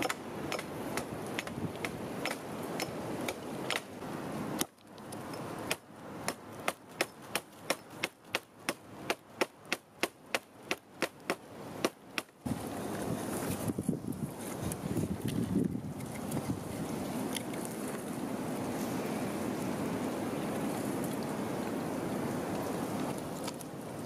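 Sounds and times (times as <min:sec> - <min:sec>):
hatchet chopping wood: 0:00.0 - 0:03.9, 0:05.7 - 0:12.4
outdoor background rush: 0:00.0 - 0:24.0.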